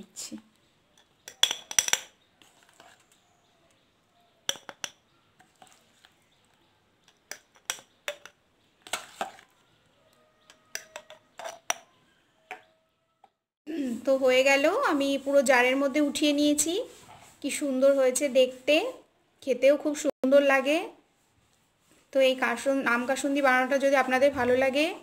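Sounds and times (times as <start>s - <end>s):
spoon clinking against glass jar: 1.0s - 2.2s, 4.5s - 5.1s.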